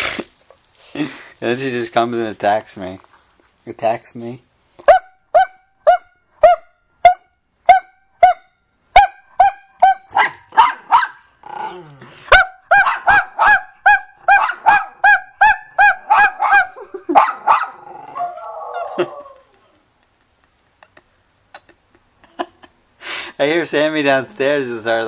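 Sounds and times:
small dog yapping: 9.0s - 19.3s.

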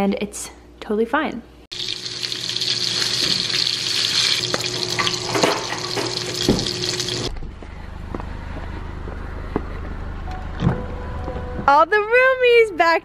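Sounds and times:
steady stove hiss: 1.8s - 7.3s.

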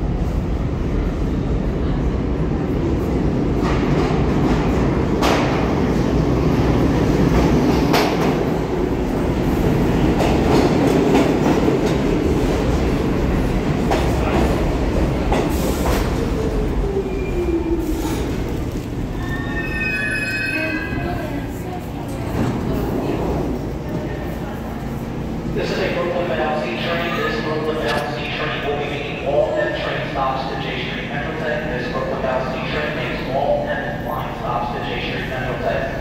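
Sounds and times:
subway train rumbling: 0.0s - 36.0s
high squeal: 19.2s - 21.2s.

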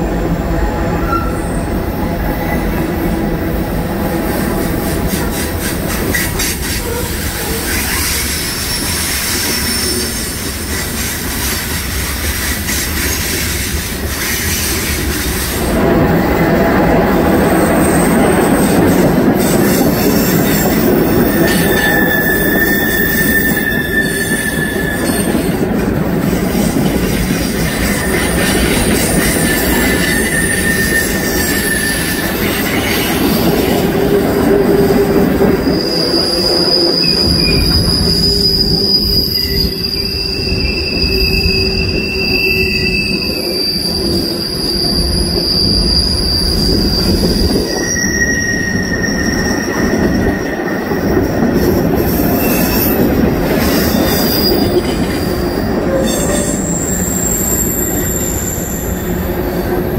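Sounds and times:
train wheels rumbling on rail: 0.0s - 59.9s
wheels squealing against rail: 0.6s - 59.9s.

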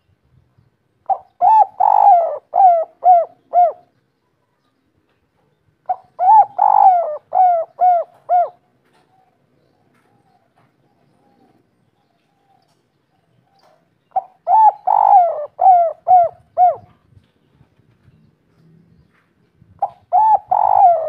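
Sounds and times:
dove cooing: 1.0s - 4.0s, 5.8s - 11.7s, 13.6s - 17.0s, 19.8s - 21.0s.

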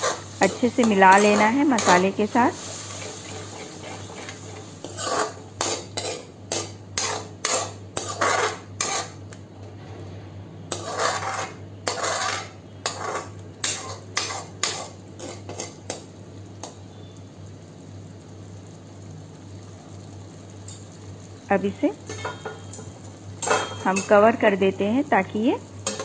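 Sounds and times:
metal spoon scraping a steel pan: 0.0s - 2.3s, 2.9s - 9.2s, 10.7s - 15.8s
low steady hum: 15.3s - 26.0s.

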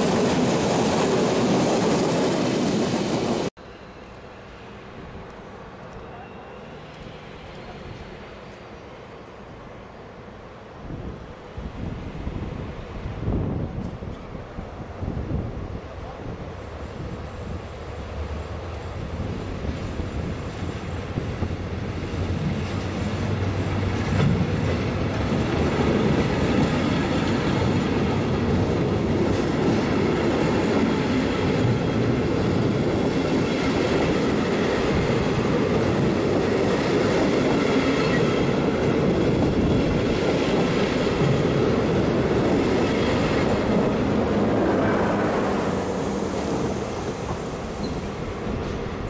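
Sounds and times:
train wheels rumbling: 0.0s - 9.4s, 11.4s - 49.0s
wheel squeal: 16.6s - 23.5s, 46.0s - 48.2s.

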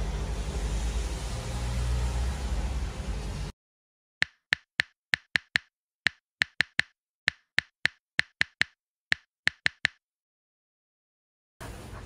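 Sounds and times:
typing-style clicks: 4.2s - 10.0s.

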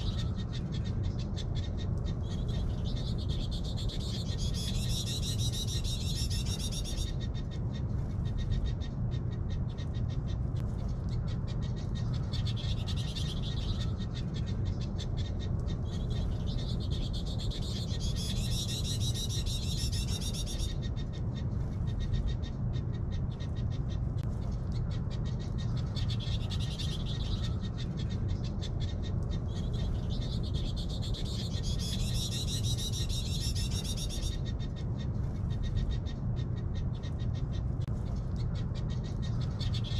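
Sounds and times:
high wavering animal calls: 0.0s - 7.6s
steady low rumble: 0.0s - 39.9s.

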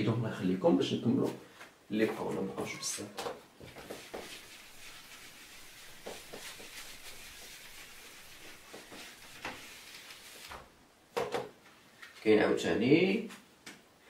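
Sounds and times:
eraser rubbing on whiteboard: 3.6s - 10.6s.

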